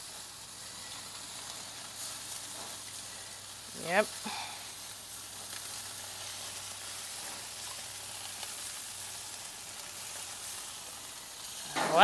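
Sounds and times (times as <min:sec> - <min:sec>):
chicken wings sizzling on grill: 0:00.0 - 0:12.0.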